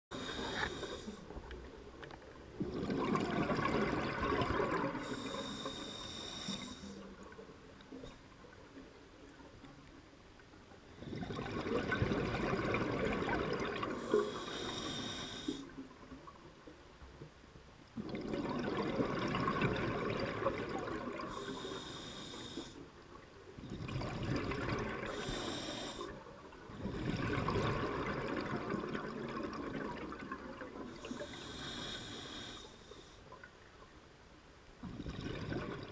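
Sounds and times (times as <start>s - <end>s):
scuba regulator inhale hiss: 0.1s - 1.3s, 5.0s - 7.0s, 14.0s - 15.8s, 21.2s - 22.8s, 25.1s - 26.2s, 31.0s - 33.3s
exhaled air bubbling: 0.1s - 8.9s, 10.9s - 16.4s, 18.0s - 22.4s, 23.6s - 32.6s, 34.8s - 35.9s.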